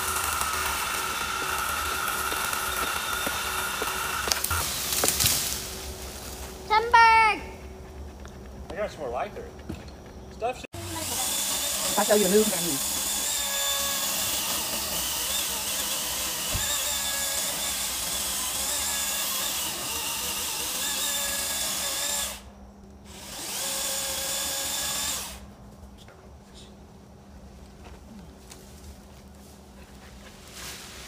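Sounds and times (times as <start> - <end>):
chainsaw cutting: 0.0 - 6.6, 10.8 - 25.4.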